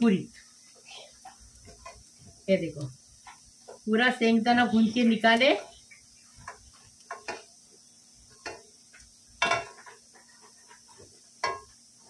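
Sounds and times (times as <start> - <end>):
skimmer scraping a metal pan: 8.3 - 11.8.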